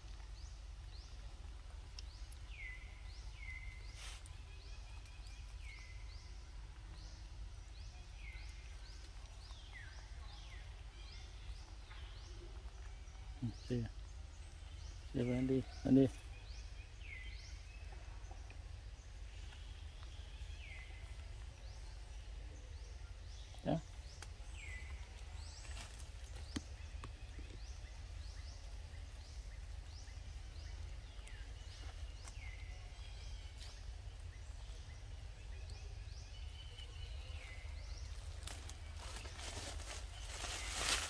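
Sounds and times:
steady low rumble: 0:16.3 - 0:41.0.

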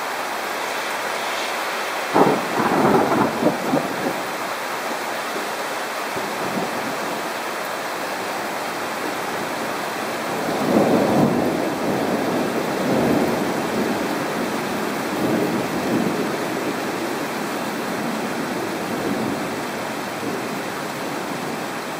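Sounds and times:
steady rain: 0:00.0 - 0:21.9
rolling thunder: 0:02.1 - 0:04.3, 0:10.4 - 0:14.3.

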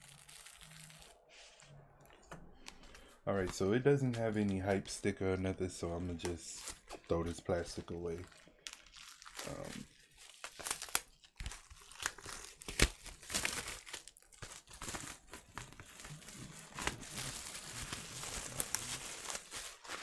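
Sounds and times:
plastic shrink-wrap crinkling: 0:00.0 - 0:01.3, 0:06.6 - 0:20.0.

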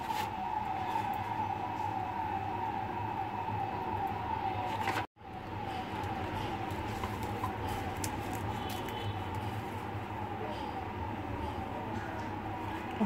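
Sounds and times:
siren-like falling tone: 0:00.0 - 0:08.6.

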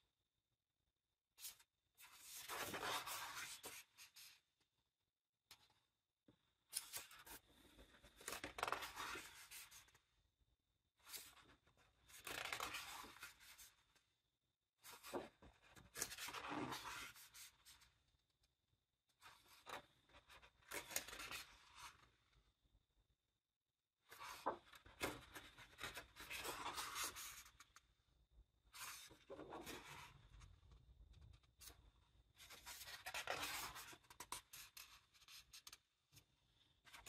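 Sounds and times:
book pages turning: 0:06.8 - 0:09.9, 0:32.4 - 0:35.8.

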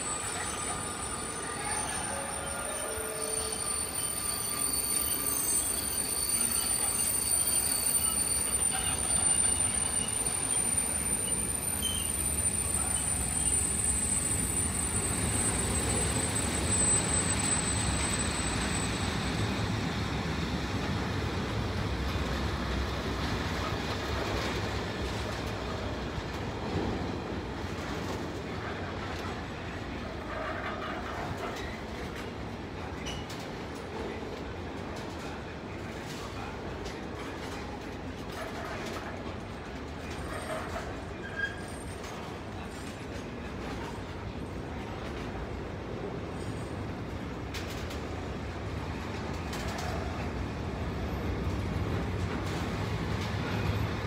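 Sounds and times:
high-pitched wheel squeal: 0:00.0 - 0:19.6
train wheels rumbling on rails: 0:00.0 - 0:54.0.

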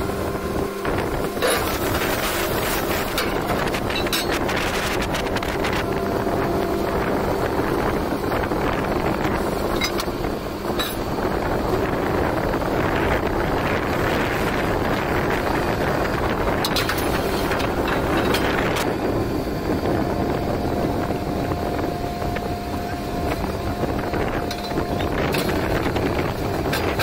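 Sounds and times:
drilling rig running: 0:00.0 - 0:27.0.

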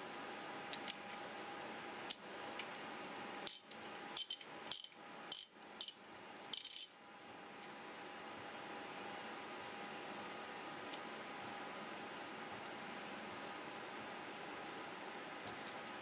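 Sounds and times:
ratchet wrench clicking: 0:03.5 - 0:07.0.

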